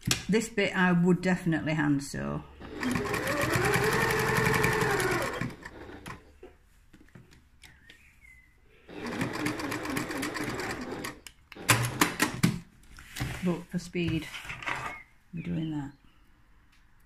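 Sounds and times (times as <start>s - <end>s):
sewing machine stitching: 2.6s - 6.3s, 8.9s - 12.4s.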